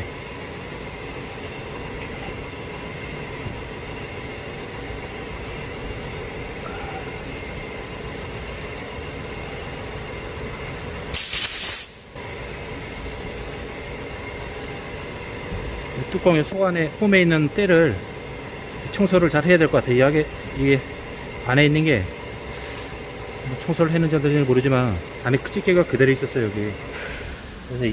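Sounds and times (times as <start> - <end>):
mechanical shop hum: 0.0 - 27.9
compressed air hiss: 11.1 - 12.2, 22.5 - 23.0, 26.9 - 27.9.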